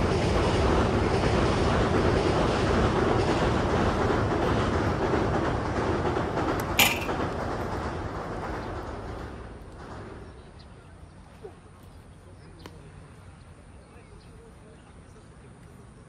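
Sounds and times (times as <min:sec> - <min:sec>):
loud steady noise: 0:00.0 - 0:10.2.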